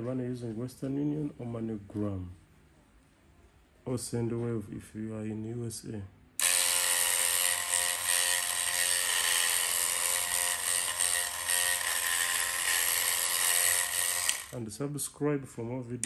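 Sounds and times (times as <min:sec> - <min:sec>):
electric hair machine buzzing: 0:06.4 - 0:14.6.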